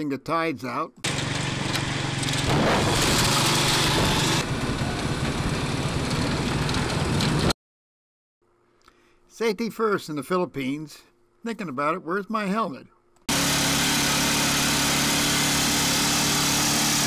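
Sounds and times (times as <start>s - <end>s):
small engine running: 1.0s - 7.5s, 13.3s - 17.0s
road noise: 1.1s - 7.5s
rushing wind: 2.4s - 7.5s.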